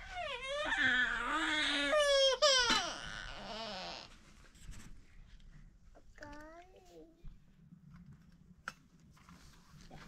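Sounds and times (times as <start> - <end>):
baby crying: 0.0 - 4.1.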